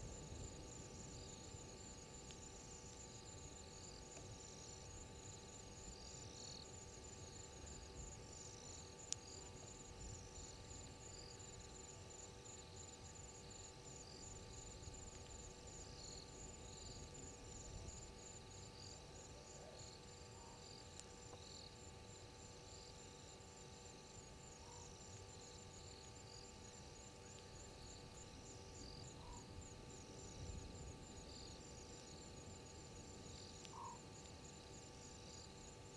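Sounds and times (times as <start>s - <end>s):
faint electrical hum: 0.0s - 35.9s
irregular insect chirps: 0.0s - 35.9s
insect high pulsed trill: 21.5s - 35.9s.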